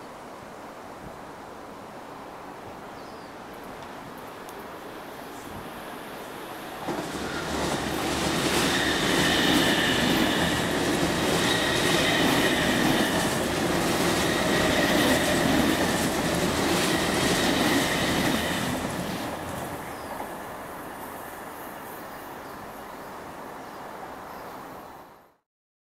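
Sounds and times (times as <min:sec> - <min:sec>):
train wheels rumbling on rail: 0:05.5 - 0:20.7
high-pitched squeal: 0:06.6 - 0:19.6
rail joint clacks: 0:06.7 - 0:20.3.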